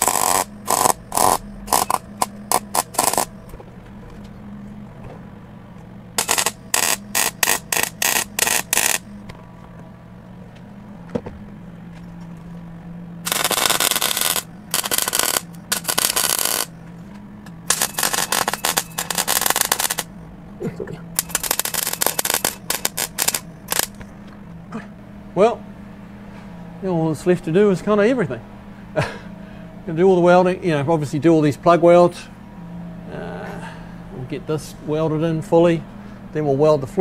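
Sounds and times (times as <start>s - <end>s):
welder arc crackling: 0.0s - 3.4s, 6.2s - 9.4s, 13.2s - 16.8s, 17.6s - 20.1s, 21.1s - 24.0s
steady low hum: 0.0s - 37.0s.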